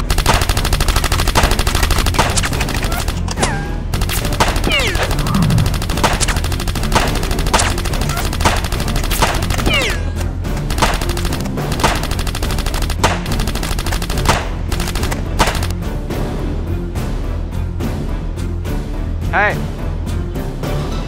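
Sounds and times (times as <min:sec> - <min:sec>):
rapid automatic gunfire: 0:00.0 - 0:03.3, 0:03.9 - 0:09.7, 0:10.6 - 0:15.7
music: 0:00.0 - 0:21.0.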